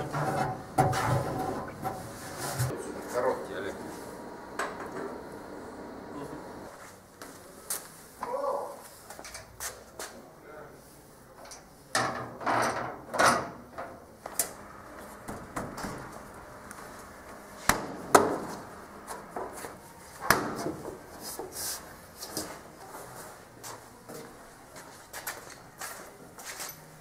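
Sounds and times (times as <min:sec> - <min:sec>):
tools knocking and scraping: 0:00.0 - 0:02.7.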